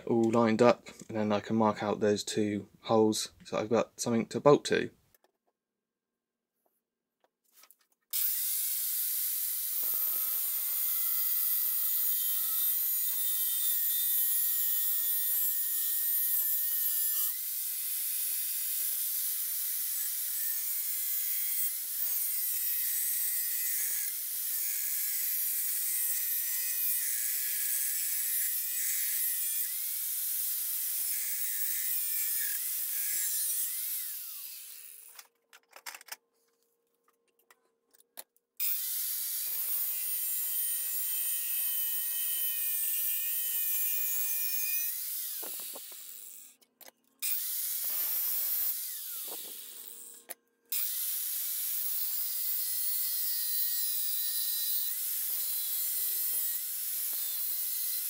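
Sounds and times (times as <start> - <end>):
angle grinder cutting steel: 8.1 - 35.3, 38.6 - 46.6, 47.2 - 58.0.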